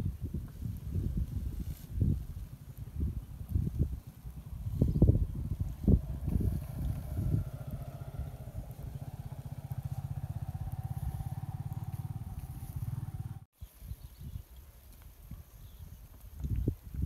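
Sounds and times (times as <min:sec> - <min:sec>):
small engine running: 0:04.0 - 0:13.5.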